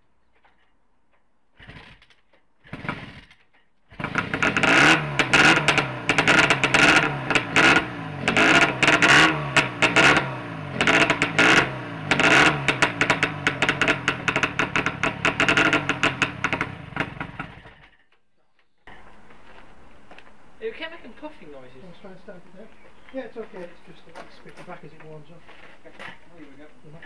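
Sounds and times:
motorcycle kick-start: 1.5 - 18.2
two-stroke engine revving: 1.6 - 18.0.

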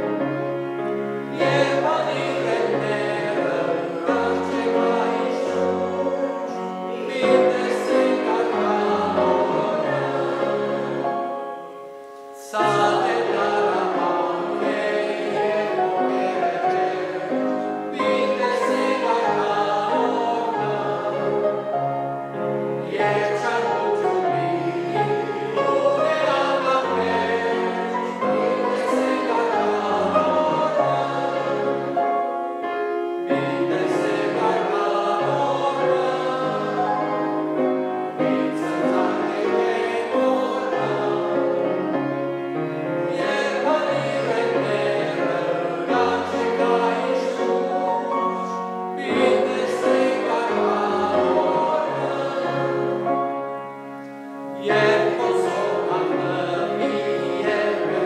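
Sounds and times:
congregation singing a hymn: 0.0 - 58.0.

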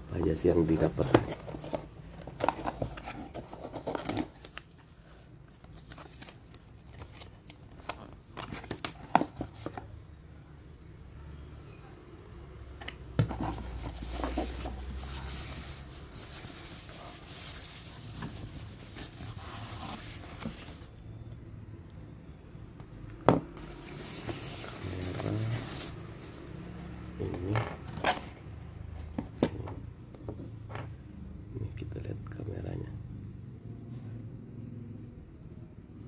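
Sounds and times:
plastic packaging rustling: 1.0 - 9.9, 13.3 - 21.0, 23.6 - 26.7.

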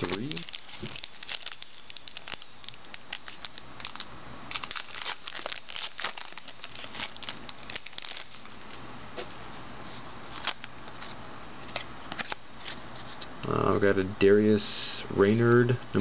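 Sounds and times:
foil wrapper tearing and crinkling: 0.0 - 8.6.

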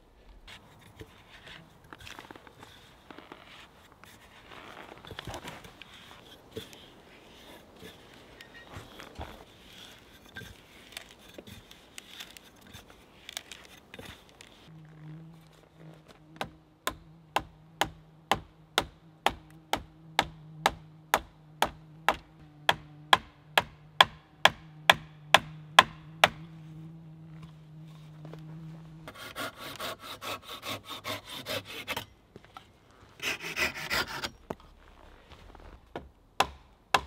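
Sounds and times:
hand auger boring into log: 4.6 - 14.6, 27.4 - 32.1, 33.2 - 35.6
wooden mallet striking wood: 16.4 - 26.5, 35.9 - 37.0.

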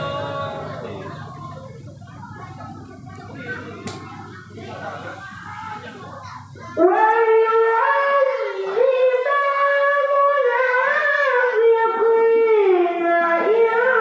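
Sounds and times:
boy reciting melodically into microphone: 5.2 - 14.0.

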